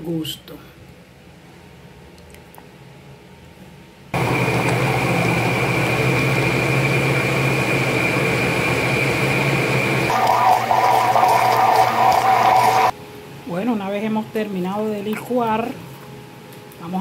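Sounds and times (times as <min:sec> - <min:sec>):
blender motor whining: 0:04.2 - 0:12.9.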